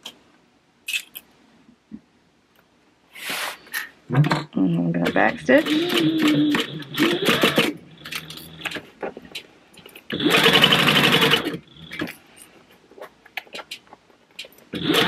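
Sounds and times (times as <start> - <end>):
industrial sewing machine stitching: 5.1 - 8.8, 10.1 - 12.1, 14.8 - 15.0.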